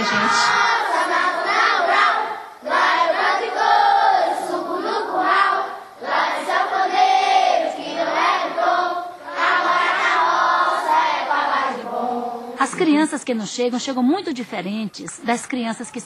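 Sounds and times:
children singing together: 0.0s - 12.6s.

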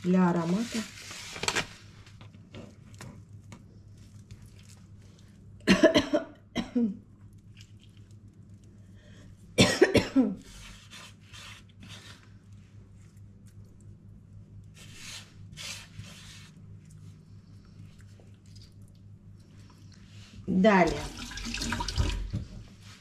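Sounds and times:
person coughing: 5.6s - 7.0s, 9.6s - 10.4s.

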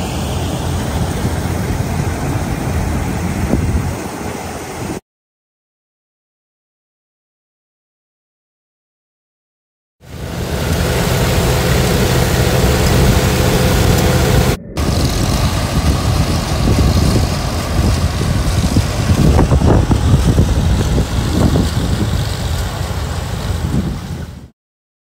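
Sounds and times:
tractor engines running: 0.0s - 4.8s, 10.0s - 24.4s
corn picker working: 10.1s - 24.3s.

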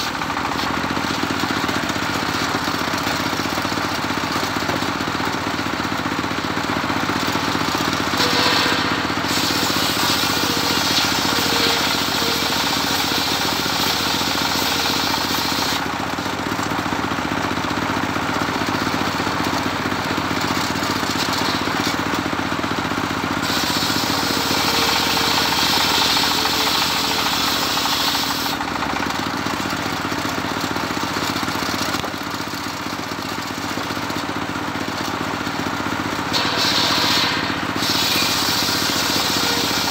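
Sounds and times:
saw engine running: 0.0s - 39.9s
saw blade hissing through timber: 8.2s - 15.9s, 23.4s - 28.6s, 36.3s - 39.9s.

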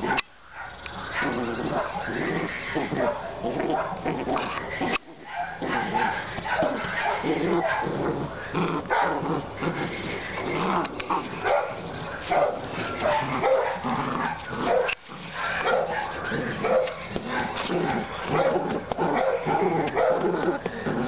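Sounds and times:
puppy yipping and barking: 0.6s - 4.0s, 5.3s - 7.9s, 10.0s - 20.2s.

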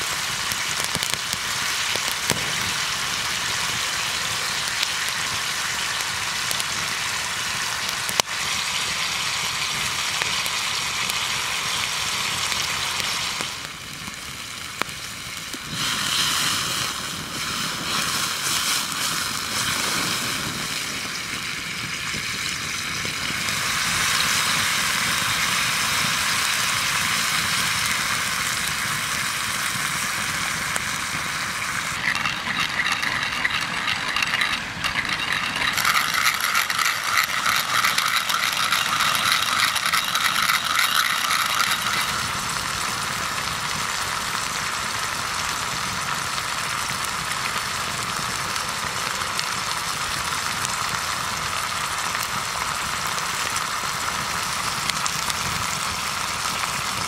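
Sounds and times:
sauce sizzling in a skillet: 0.0s - 57.0s
pepper mill grinding: 0.3s - 3.4s, 29.6s - 43.4s.

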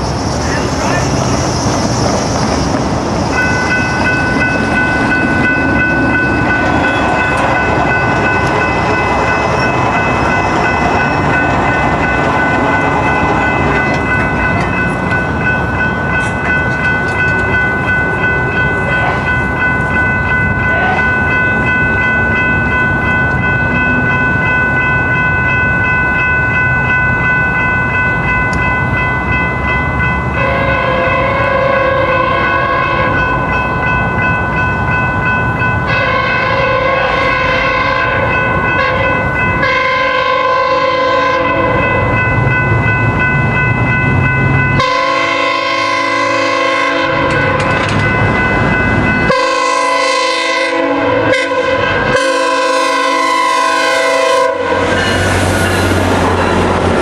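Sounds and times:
crossing warning bells ringing: 0.0s - 57.0s
train rumble: 0.0s - 57.0s
train horn: 30.4s - 33.2s, 35.9s - 41.9s, 44.8s - 47.8s, 49.3s - 55.4s.

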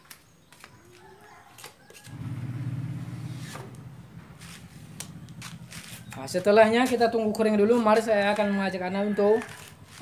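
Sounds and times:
hand spreaders clicking and scraping: 0.0s - 2.2s, 4.4s - 10.0s.

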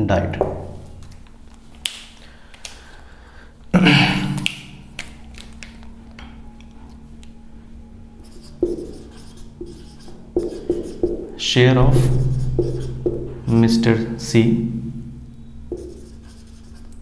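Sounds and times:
pen scratching on paper: 8.2s - 11.3s, 12.0s - 13.2s, 15.7s - 17.0s.

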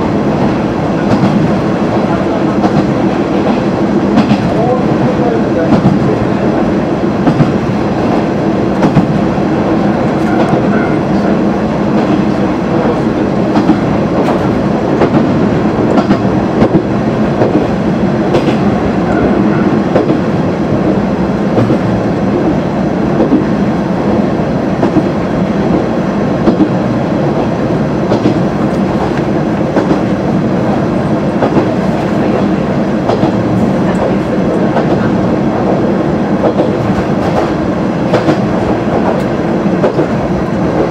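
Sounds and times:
wheels clacking on rail joints: 0.4s - 6.2s, 10.1s - 22.6s, 24.8s - 26.8s, 28.1s - 35.8s, 36.4s - 40.9s.

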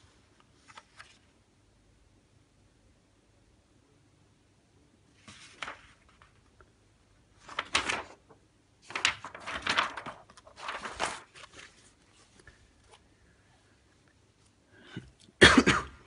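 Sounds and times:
paper sheets rustling: 0.4s - 1.3s, 5.1s - 6.6s, 7.4s - 13.1s.

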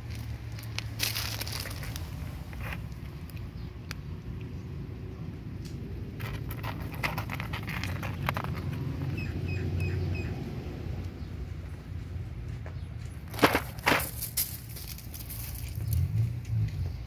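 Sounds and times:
cat crunching dry kibble: 0.0s - 4.5s, 5.6s - 9.2s, 13.4s - 16.2s.

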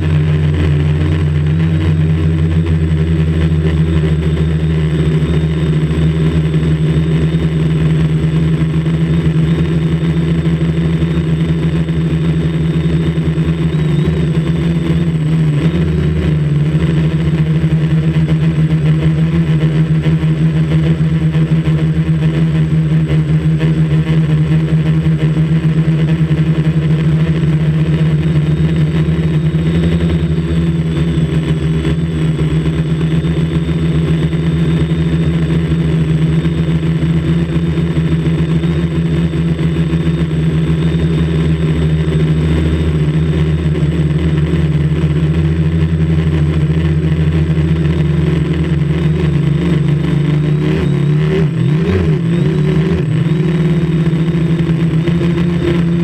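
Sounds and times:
drone propellers buzzing: 0.0s - 56.0s.

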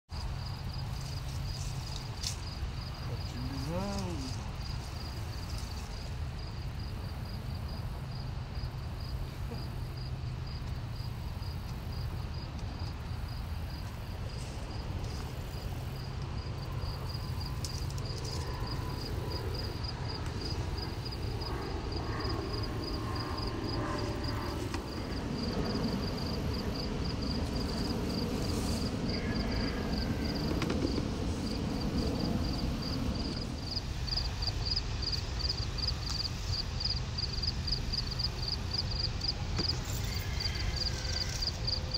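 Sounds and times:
crickets chirping: 0.1s - 41.9s
rustling of vines: 0.2s - 6.5s.

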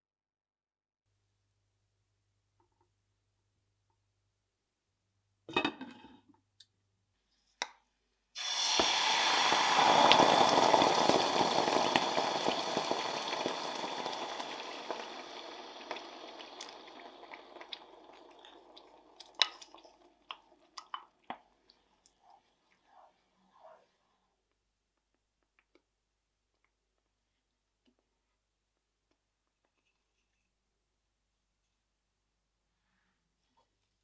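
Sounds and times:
sauce popping: 8.4s - 22.3s
water splashing in a pot: 8.4s - 22.4s
sauce sizzling in hot oil: 8.4s - 22.5s.

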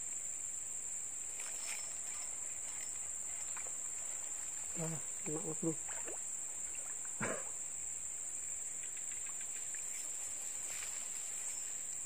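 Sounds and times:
insect chorus buzzing: 0.0s - 12.0s.

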